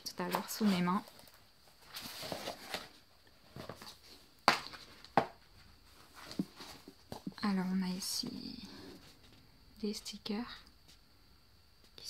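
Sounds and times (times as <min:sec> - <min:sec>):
paper and plastic rustling: 0:00.0 - 0:05.2, 0:05.9 - 0:07.4.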